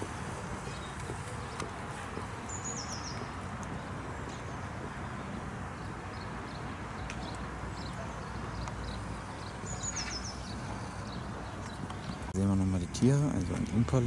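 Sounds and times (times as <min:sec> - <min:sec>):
faint bird chirps: 0:07.2 - 0:12.2.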